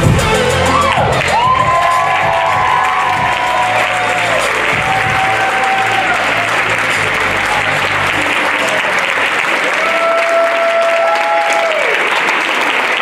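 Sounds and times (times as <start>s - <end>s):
music with low beat: 0.0s - 5.6s
audience applauding: 0.0s - 13.0s.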